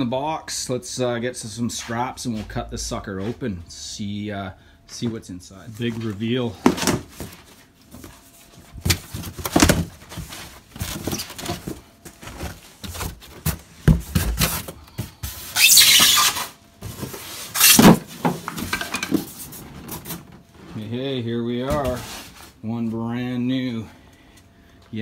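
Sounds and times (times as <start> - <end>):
cardboard and styrofoam handling: 5.8 - 20.4, 21.7 - 22.6.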